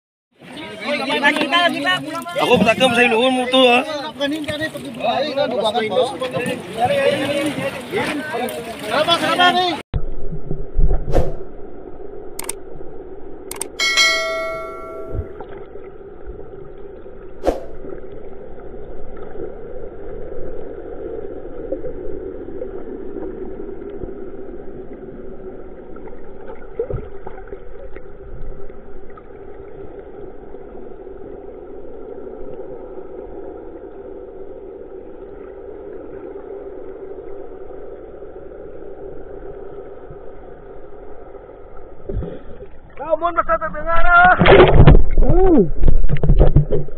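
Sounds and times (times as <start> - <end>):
sharp clicks: 12.4 - 12.6, 13.5 - 13.8
bell-like ding: 13.8 - 15.4
muffled underwater rumble: 14.8 - 46.9.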